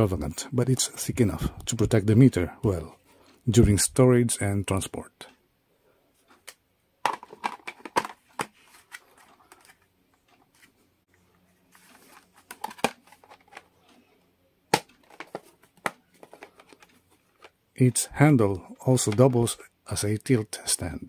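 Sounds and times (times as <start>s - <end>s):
plastic case clicks and knocks: 7.0s - 8.5s.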